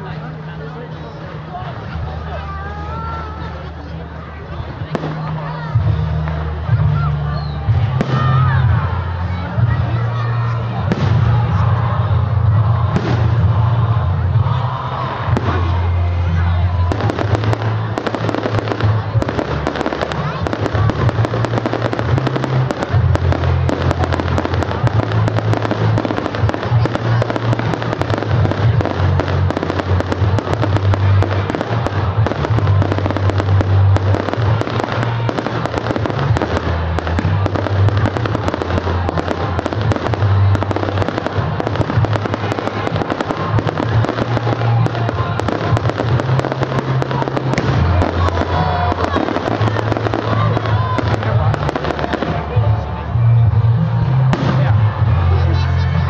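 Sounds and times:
fireworks bursting and crackling: 4.6 - 6.5, 7.7 - 9.4, 10.7 - 53.0, 53.9 - 55.4.

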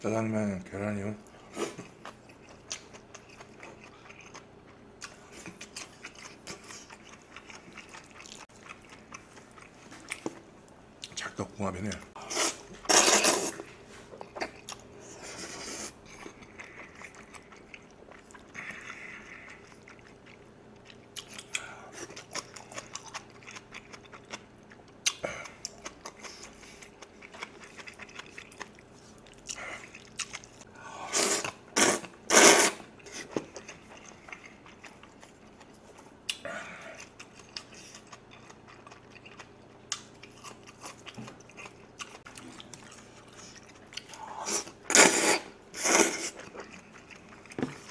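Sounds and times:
wet chewing with mouth clicks: 1.8 - 11.2, 15.7 - 30.7, 31.4 - 36.4, 37.0 - 45.1, 45.8 - 47.9
noodle slurps: 31.1 - 32.8.

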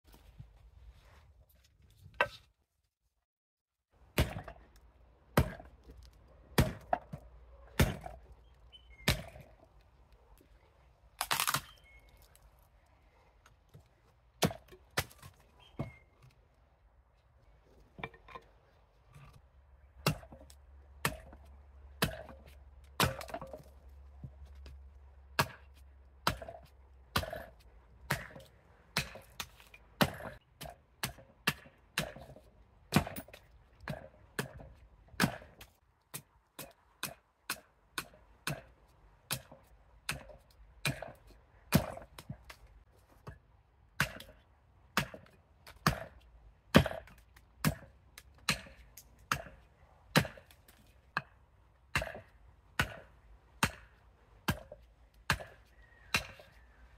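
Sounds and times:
axe chopping wood: 4.1 - 5.8, 6.5 - 8.2, 9.0 - 9.5, 14.4 - 16.0, 20.0 - 24.3, 25.4 - 42.5, 44.0 - 56.5.

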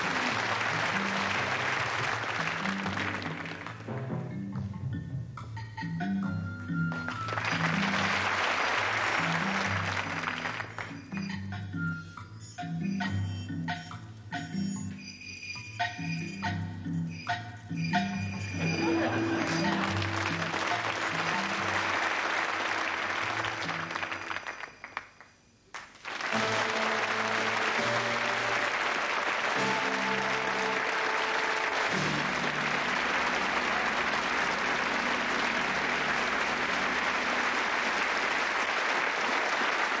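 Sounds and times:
audience applauding: 0.0 - 3.9, 6.9 - 11.2, 18.6 - 40.0
background music: 0.0 - 24.8, 26.1 - 40.0.

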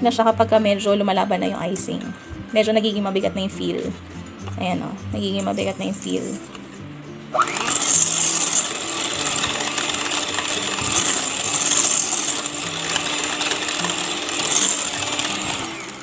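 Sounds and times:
electric hand mixer whisking cream: 7.4 - 16.0.

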